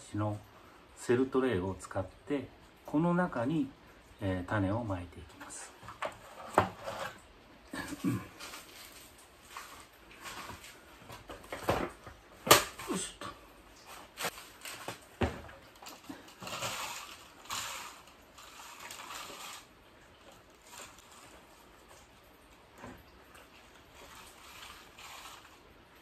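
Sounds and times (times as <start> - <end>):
plastic bucket knocks and clunks: 11.2 - 12.8, 14.9 - 15.6
soil pouring onto plastic tray: 13.8 - 22.3, 23.0 - 26.0.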